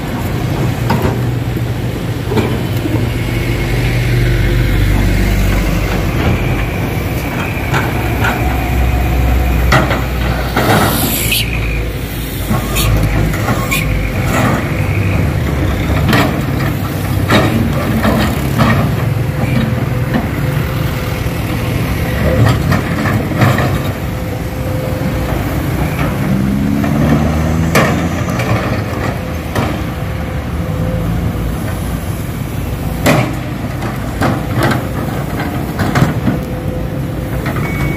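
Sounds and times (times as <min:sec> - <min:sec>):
heavy machinery diesel engines: 0:00.0 - 0:37.9
engine revving: 0:25.8 - 0:28.8.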